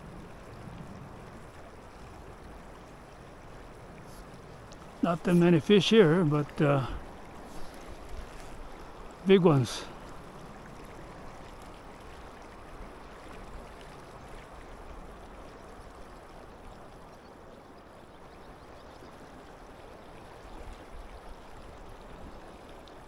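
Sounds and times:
river current rushing over riffle: 0:03.6 - 0:10.2.

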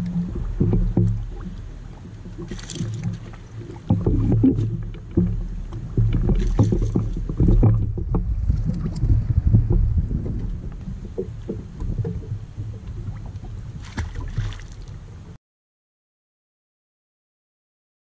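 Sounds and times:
small waves slapping a boat hull: 0:00.0 - 0:15.4
low knocks: 0:03.8 - 0:14.2
wind gusts on microphone: 0:05.9 - 0:15.4.

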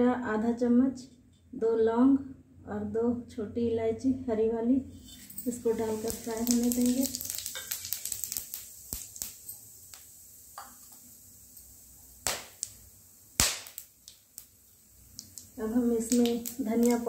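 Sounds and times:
spices crackling in hot oil: 0:05.0 - 0:17.0
loud sharp pops: 0:12.2 - 0:12.8, 0:13.4 - 0:14.5.

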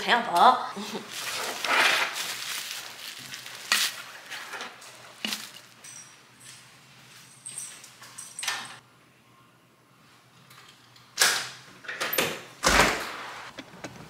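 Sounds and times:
soft rustle: 0:01.0 - 0:04.4.

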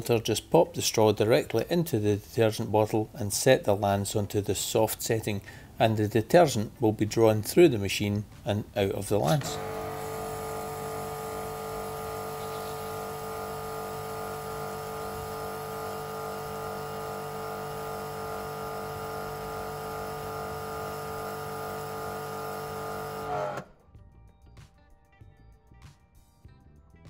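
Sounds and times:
pressure washer motor whining: 0:09.3 - 0:23.7.

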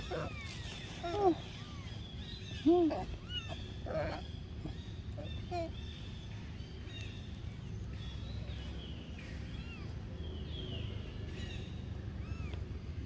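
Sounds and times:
birds chirping: 0:00.0 - 0:13.0
low outdoor rumble: 0:00.0 - 0:13.0.

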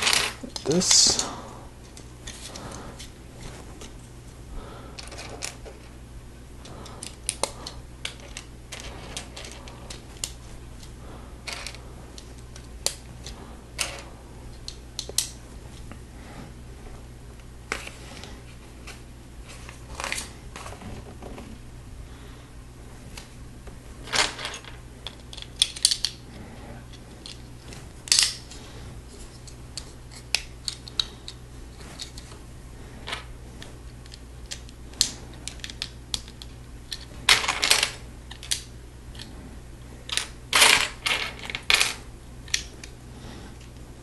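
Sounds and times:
steady low hum: 0:00.0 - 0:44.0
plastic pieces clicking: 0:06.6 - 0:10.4, 0:25.0 - 0:26.2, 0:34.0 - 0:39.3.

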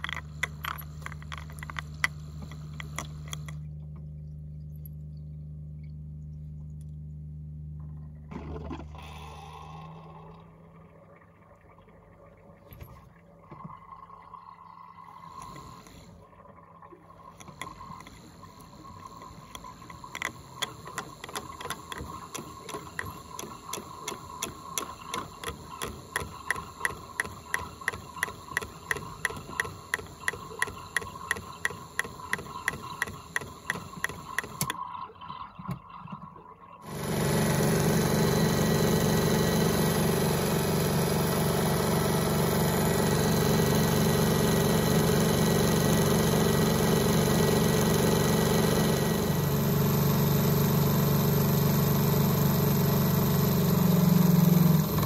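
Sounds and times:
toy washing machine motor whining: 0:00.0 - 0:03.6, 0:08.9 - 0:10.4, 0:17.3 - 0:34.8, 0:36.8 - 0:55.0
low steady hum: 0:00.0 - 0:38.0.

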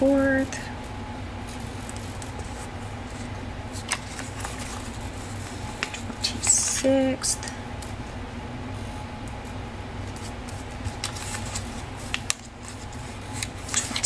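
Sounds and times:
steady low hum: 0:00.0 - 0:14.0
paper rustling and clicks: 0:03.8 - 0:05.0, 0:05.8 - 0:06.8, 0:10.0 - 0:14.0.

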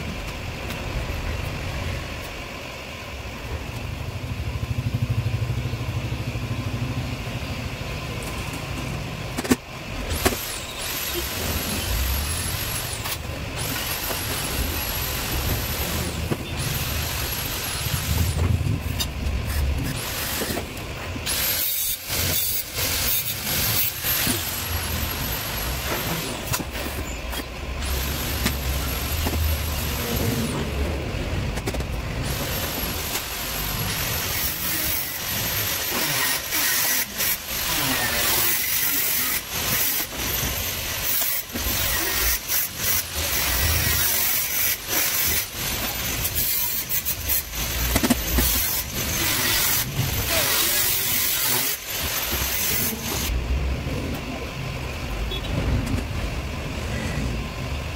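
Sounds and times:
workshop background noise: 0:00.0 - 0:57.9
cordless drill: 0:10.1 - 0:18.4, 0:19.8 - 0:30.2, 0:32.2 - 0:53.3.

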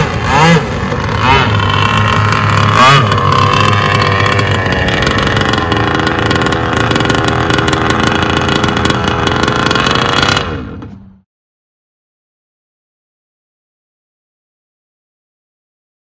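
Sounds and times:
model boat engine: 0:00.0 - 0:11.2.

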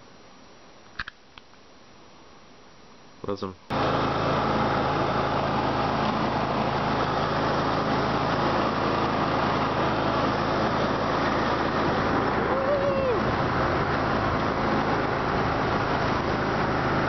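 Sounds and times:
riding lawn mower engine running: 0:03.7 - 0:17.0.

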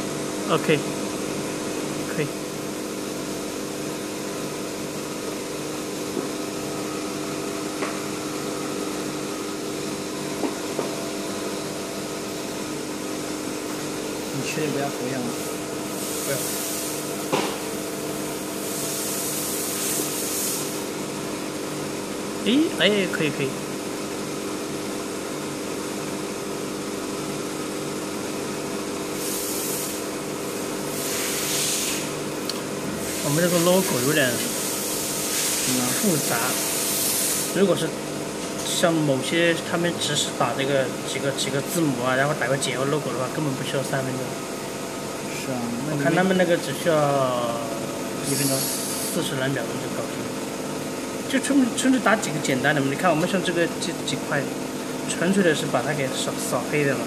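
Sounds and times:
laser machine fans humming: 0:00.0 - 0:57.0
high hiss bursts: 0:15.3 - 0:17.1, 0:18.4 - 0:20.9, 0:29.2 - 0:30.1, 0:30.9 - 0:32.1, 0:33.0 - 0:37.6, 0:48.2 - 0:49.4.

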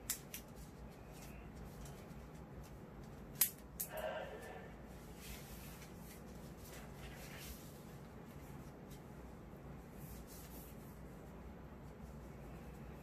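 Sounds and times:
cloth rustling: 0:05.0 - 0:13.0.

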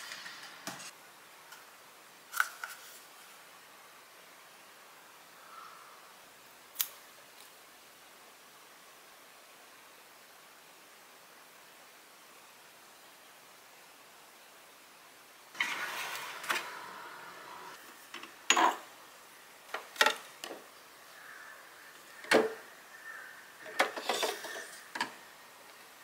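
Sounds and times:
plastic containers rubbing and sliding: 0:15.6 - 0:17.8, 0:23.9 - 0:24.9.

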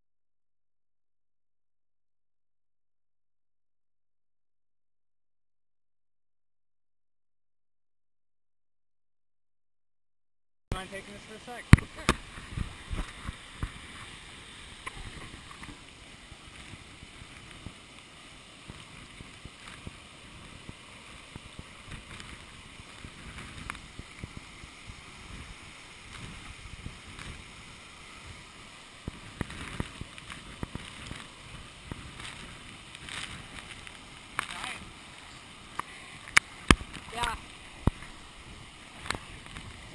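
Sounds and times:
sharp water splashes: 0:10.7 - 0:39.9
waterfall rushing: 0:10.7 - 0:39.9
water sloshing against camera: 0:11.5 - 0:39.9.

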